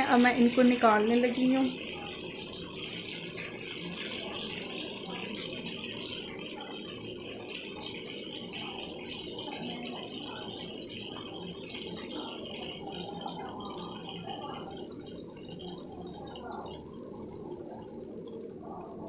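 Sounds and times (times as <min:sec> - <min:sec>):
meat sizzling in hot oil: 0:00.0 - 0:19.0.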